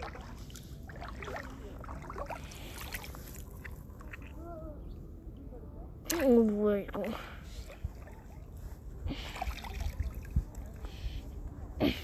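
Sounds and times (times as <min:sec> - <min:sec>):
seawater sloshing and splashing: 0:00.0 - 0:04.4, 0:07.4 - 0:10.9.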